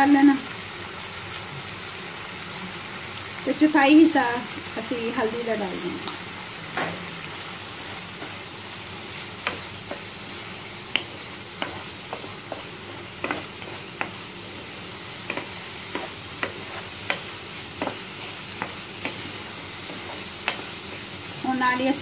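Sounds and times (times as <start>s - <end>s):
food sizzling: 0.0s - 22.0s
spatula scraping a frying pan: 7.8s - 21.4s.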